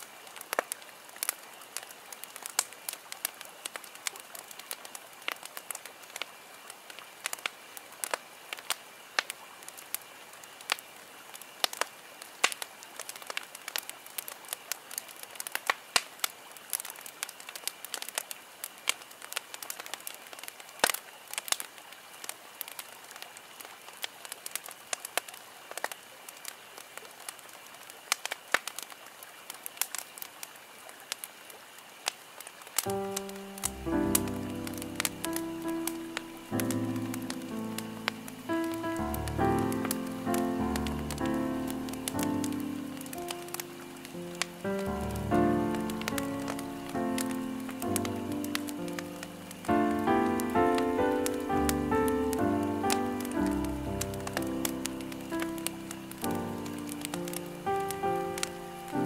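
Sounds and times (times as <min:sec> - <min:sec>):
steady hiss: 0:00.0 - 0:59.0
wood fire crackling: 0:00.0 - 0:59.0
sharp pops: 0:32.9 - 0:59.0.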